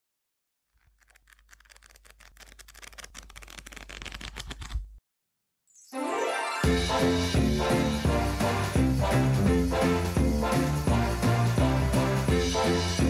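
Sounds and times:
music: 5.9s - 13.0s.

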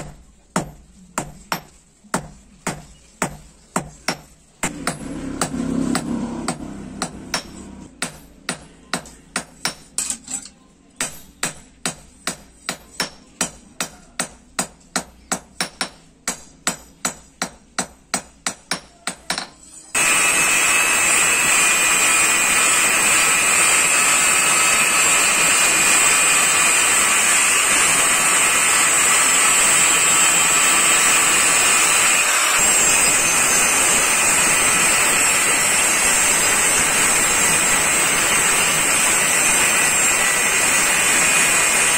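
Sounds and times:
hammer striking steel on anvil: 0.0s - 20.1s
angle grinder grinding metal: 4.7s - 7.9s, 19.7s - 41.9s.

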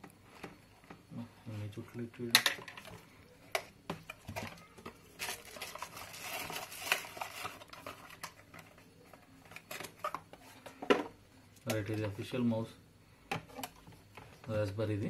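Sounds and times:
plastic wrapping crinkling: 4.6s - 10.6s.

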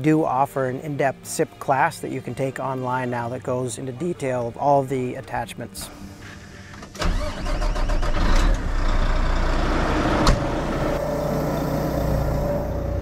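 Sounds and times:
vehicle engine starting and running: 6.6s - 13.0s.

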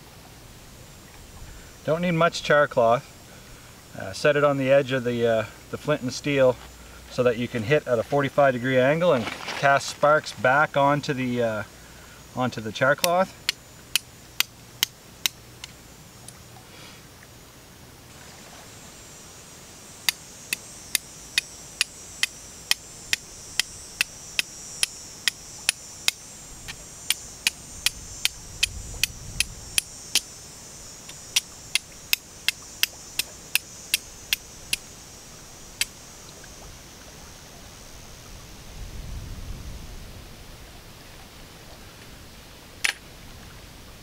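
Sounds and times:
steady high hiss: 0.0s - 44.0s
steel striker clicking on flint: 13.0s - 15.8s, 20.0s - 30.3s, 31.0s - 34.9s.

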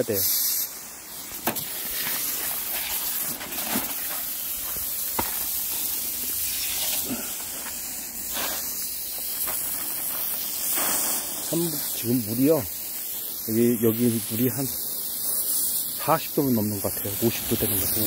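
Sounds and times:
hose spraying water on soil: 0.0s - 18.0s.

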